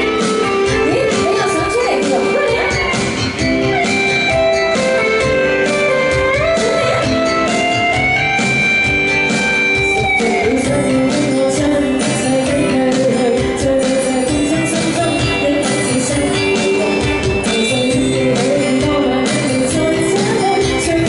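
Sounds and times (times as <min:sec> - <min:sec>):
woman singing into microphone: 0:00.0 - 0:03.1, 0:09.7 - 0:21.0
instrumental backing music: 0:00.0 - 0:21.0.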